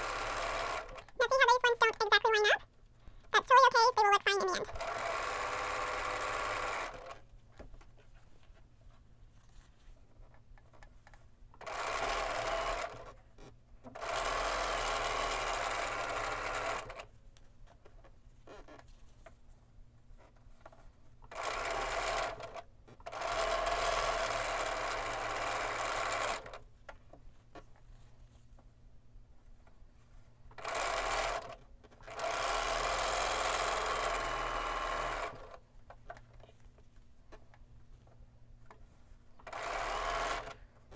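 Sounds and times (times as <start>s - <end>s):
sewing machine stitching: 0.0s - 2.4s, 3.6s - 7.3s, 11.6s - 13.2s, 13.9s - 17.1s, 20.6s - 26.6s, 30.5s - 35.6s, 39.4s - 40.7s.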